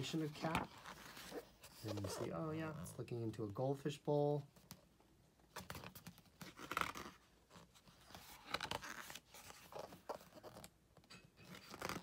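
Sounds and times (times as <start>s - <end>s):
book pages turning: 0.0s - 2.5s, 5.5s - 10.7s, 11.4s - 12.0s.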